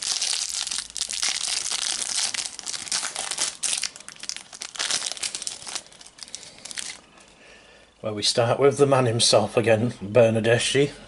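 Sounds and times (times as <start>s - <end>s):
foil wrapper crinkling: 0.0s - 7.2s.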